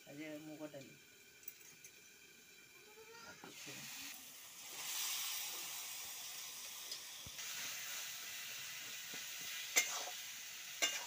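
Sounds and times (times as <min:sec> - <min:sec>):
vegetables sizzling in pan: 0:00.0 - 0:11.0
spatula clinking against pan: 0:10.8 - 0:11.0.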